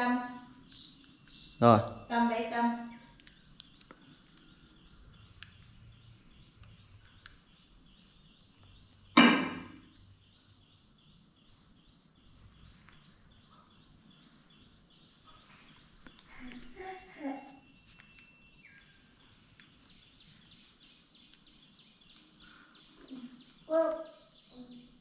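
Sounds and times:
faint bird chirps: 0:00.0 - 0:25.0
faint clicks: 0:03.1 - 0:05.8.

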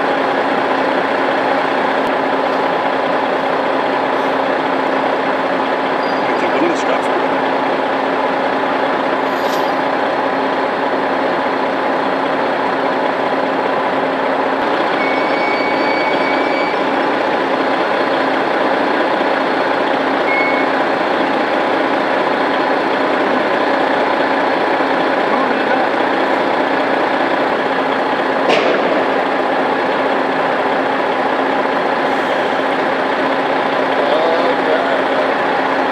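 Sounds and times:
diesel trucks running: 0:00.0 - 0:35.9
short high electronic tones: 0:15.0 - 0:16.8.

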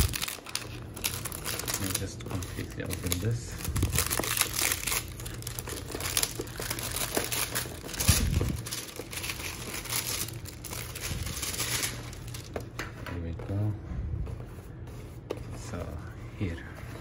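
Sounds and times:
plastic wrap crinkling and tearing: 0:00.0 - 0:12.7.

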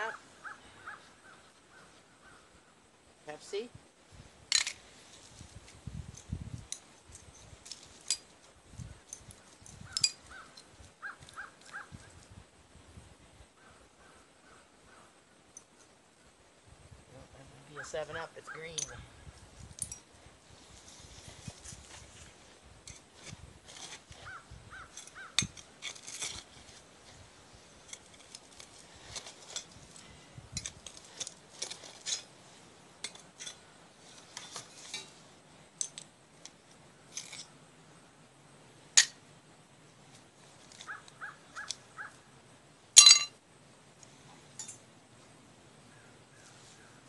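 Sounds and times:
tool scraping through debris: 0:24.9 - 0:26.9, 0:30.6 - 0:32.3
glass clinking: 0:43.0 - 0:43.4.

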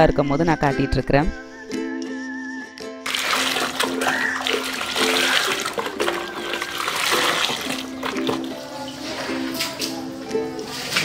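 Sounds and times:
music with plucked notes: 0:00.6 - 0:11.0
water pouring into a bucket: 0:03.1 - 0:09.6.

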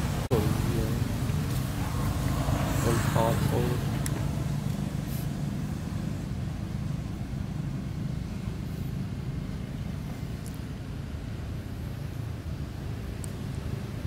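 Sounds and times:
low engine hum: 0:00.0 - 0:14.0.

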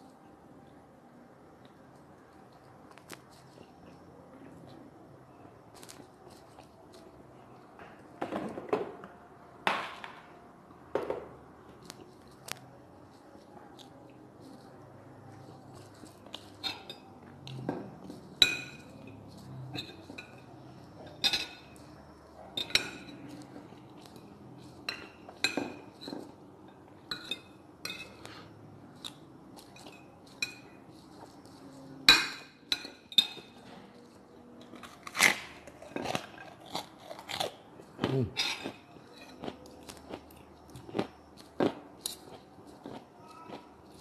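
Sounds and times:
cutlery clinking on a ceramic plate: 0:16.4 - 0:21.8, 0:24.8 - 0:26.4, 0:27.0 - 0:28.5, 0:32.0 - 0:33.8.

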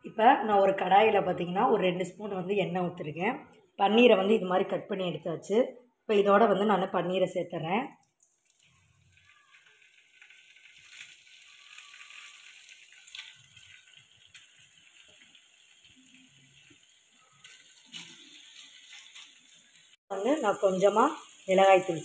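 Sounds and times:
faint sizzle of frying cheese: 0:08.1 - 0:22.0
cubes dropped into pan: 0:08.5 - 0:15.4.

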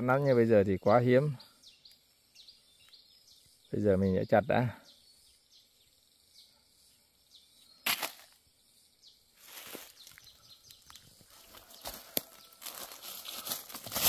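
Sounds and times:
rustling of leaves: 0:09.4 - 0:14.0.

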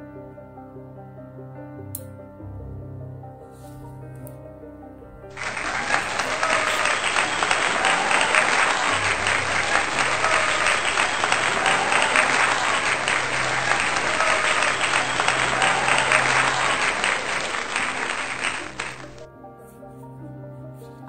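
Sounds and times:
soft background music: 0:00.0 - 0:05.3, 0:19.3 - 0:21.0
crowd applauding: 0:05.3 - 0:19.3.

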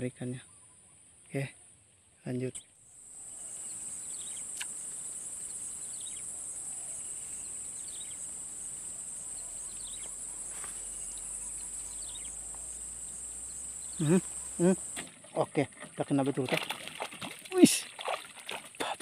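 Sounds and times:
short insect chirps: 0:02.5 - 0:15.1
high-pitched insect drone: 0:02.9 - 0:15.0.

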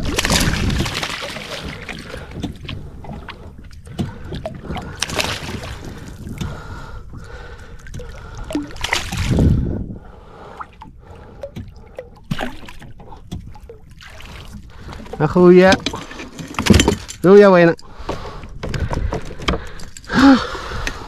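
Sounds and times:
water splashing and sloshing: 0:00.0 - 0:21.0
knocks and handling noise: 0:14.9 - 0:17.4, 0:18.0 - 0:20.1.

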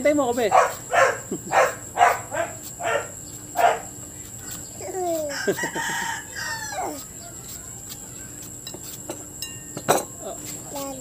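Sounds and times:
rooster crowing: 0:05.2 - 0:07.3.

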